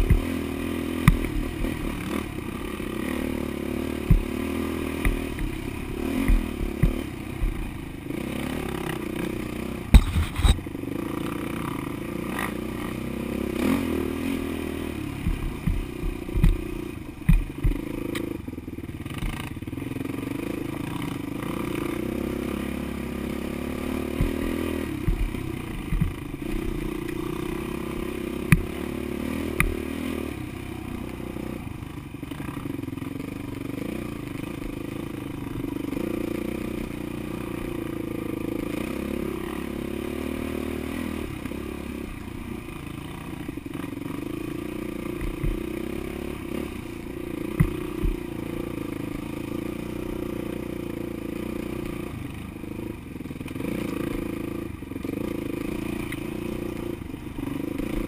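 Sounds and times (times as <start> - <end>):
off-road vehicle engine: 0.0 - 58.0
knocks and clatter over bumps: 3.9 - 7.9, 8.8 - 10.7, 15.0 - 18.4, 24.0 - 27.5, 45.1 - 45.9, 47.4 - 48.5.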